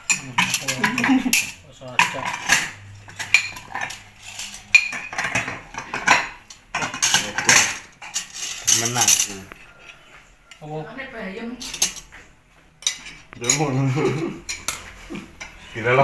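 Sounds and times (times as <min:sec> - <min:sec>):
spoons and plates clinking: 0:00.0 - 0:09.5, 0:11.6 - 0:12.1, 0:12.8 - 0:15.7.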